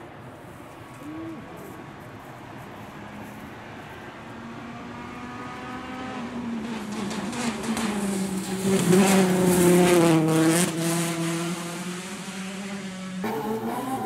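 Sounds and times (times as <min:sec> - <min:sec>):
rally car engine approaching: 0:04.1 - 0:14.0.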